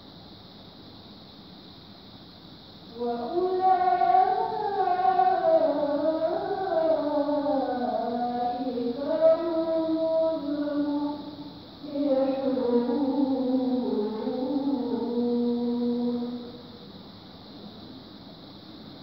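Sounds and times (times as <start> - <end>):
woman reciting melodically: 2.9 - 16.9.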